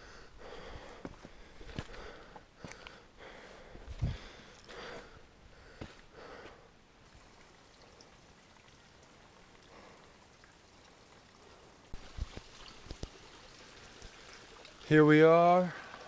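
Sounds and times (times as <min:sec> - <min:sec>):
footsteps on rocky trail: 0:00.4 - 0:06.6.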